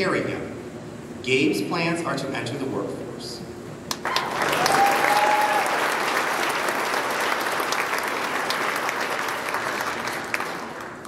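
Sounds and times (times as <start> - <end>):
audience applauding: 3.9 - 11.0
person whooping: 4.0 - 5.9.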